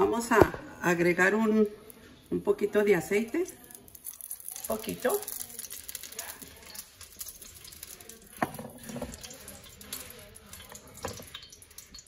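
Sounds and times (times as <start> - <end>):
cookware and bottle being moved: 8.4 - 12.0.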